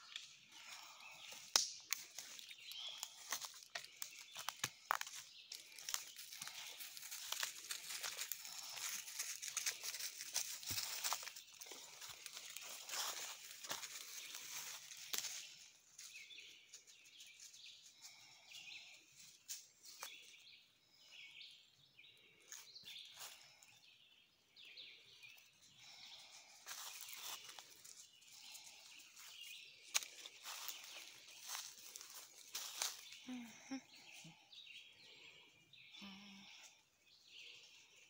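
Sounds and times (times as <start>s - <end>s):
twigs and dry leaves crackling: 0.0s - 18.5s, 19.2s - 20.4s, 25.2s - 34.4s
footsteps on woodland floor: 0.6s - 16.2s, 29.2s - 33.5s.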